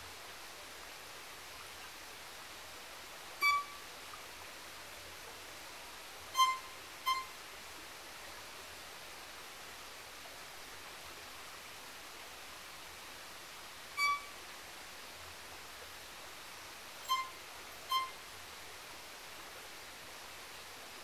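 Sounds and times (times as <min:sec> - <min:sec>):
soft hiss: 0:00.0 - 0:21.0
violin high bowed notes: 0:03.4 - 0:03.8, 0:06.4 - 0:07.3, 0:14.0 - 0:14.3, 0:17.0 - 0:18.2.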